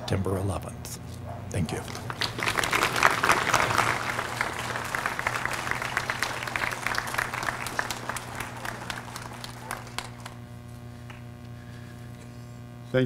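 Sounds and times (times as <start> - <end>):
audience applauding: 1.7 - 10.5.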